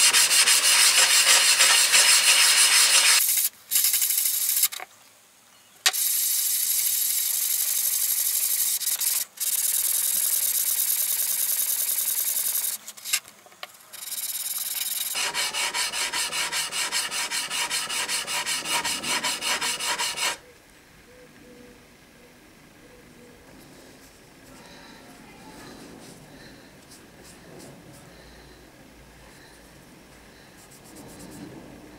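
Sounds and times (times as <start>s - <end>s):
blade scraping on abrasive paper: 0.0s - 3.9s, 14.0s - 20.4s.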